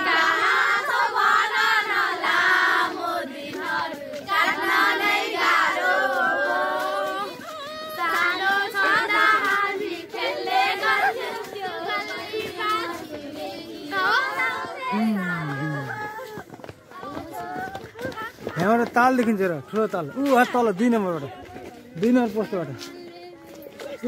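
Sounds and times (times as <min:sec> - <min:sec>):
girls singing together: 0:00.0 - 0:18.6.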